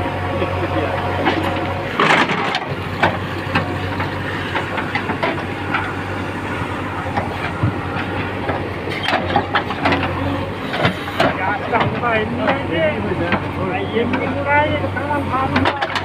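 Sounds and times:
diesel engine under load: 0:00.0 - 0:16.0.

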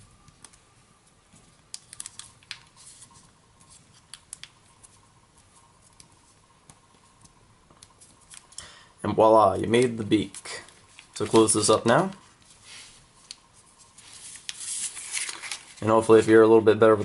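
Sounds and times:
paper rustling and crinkling: 0:01.0 - 0:06.4, 0:09.7 - 0:16.5
crisp paper crackles: 0:01.7 - 0:05.0, 0:09.8 - 0:12.6, 0:13.2 - 0:16.4.

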